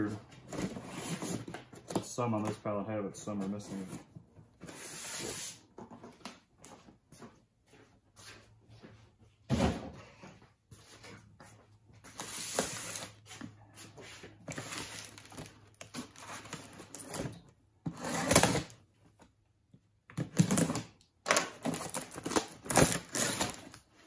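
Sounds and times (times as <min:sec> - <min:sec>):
cardboard flaps crinkling and scraping: 0:00.0 - 0:02.6, 0:12.0 - 0:19.0, 0:21.5 - 0:24.0
knife slicing plastic wrap: 0:21.7 - 0:23.7.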